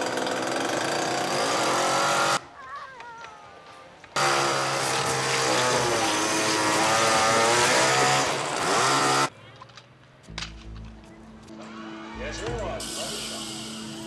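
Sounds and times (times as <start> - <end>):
chainsaw running: 0.0 - 2.4, 4.2 - 9.3.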